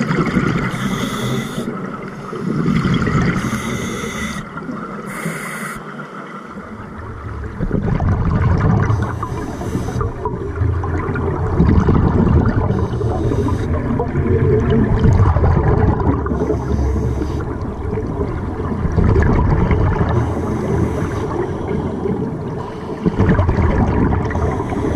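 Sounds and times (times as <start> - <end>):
exhaled air bubbling underwater: 0.0 - 24.9
regulator hiss on inhale: 0.7 - 2.8, 3.4 - 6.0, 9.0 - 10.2, 12.7 - 13.8, 16.4 - 17.5, 20.2 - 22.0, 24.4 - 24.9.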